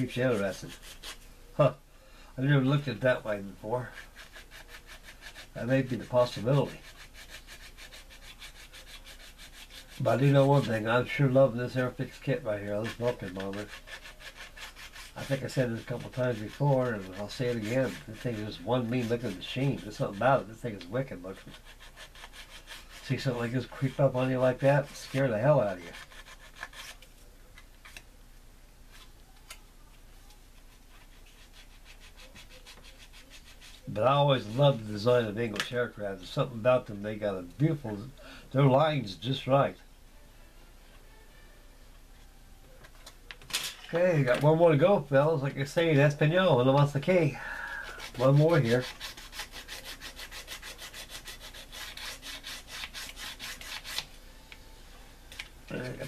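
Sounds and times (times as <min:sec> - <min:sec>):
sanding stick rubbing plastic: 0:00.0 - 0:01.2, 0:03.8 - 0:27.0, 0:30.9 - 0:34.8, 0:47.9 - 0:54.0
hand tool scraping plastic: 0:03.9 - 0:27.1.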